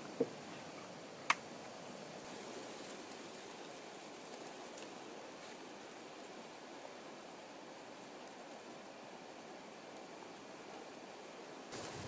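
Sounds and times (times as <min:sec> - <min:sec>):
outdoor ambient hiss: 0:00.0 - 0:12.0
light ticks: 0:04.3 - 0:05.0.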